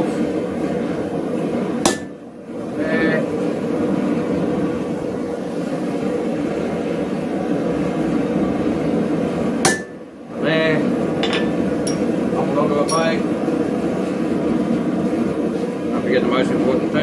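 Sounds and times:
steady hum: 0.0s - 17.0s
hammer striking metal on anvil: 1.8s - 2.2s, 9.6s - 10.0s, 11.2s - 12.1s, 12.9s - 13.2s.

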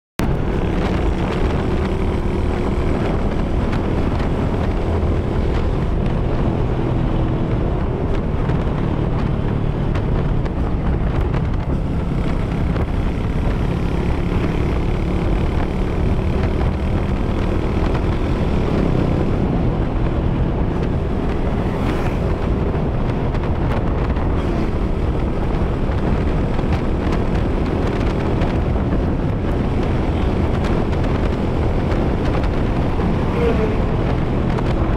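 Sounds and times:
vehicle engine droning: 0.2s - 34.9s
wind buffeting microphone: 0.2s - 34.9s.

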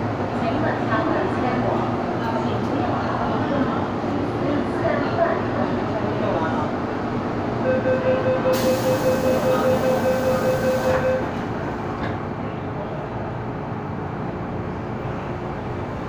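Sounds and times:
train car running noise: 0.0s - 16.0s
rapid door warning beeps: 7.7s - 11.3s.

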